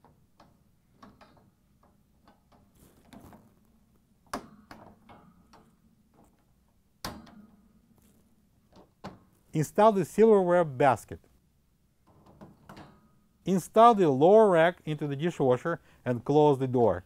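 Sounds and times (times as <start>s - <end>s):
wire rack clicks and rattles: 0.0s - 3.4s, 4.2s - 7.8s, 12.0s - 13.2s.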